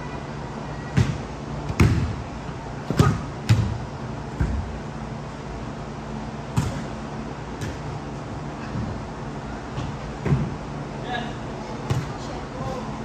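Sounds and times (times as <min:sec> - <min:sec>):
steady low hum: 0:00.0 - 0:13.0
ball thuds with echo: 0:01.0 - 0:02.2, 0:02.8 - 0:03.8, 0:06.5 - 0:07.0, 0:11.8 - 0:12.2.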